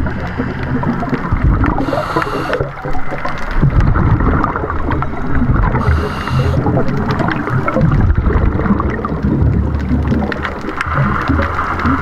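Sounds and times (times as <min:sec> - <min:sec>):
crackling clicks: 0:00.0 - 0:12.0
underwater rumble of moving water: 0:00.0 - 0:12.0
brief hiss: 0:01.8 - 0:02.7, 0:05.8 - 0:06.7.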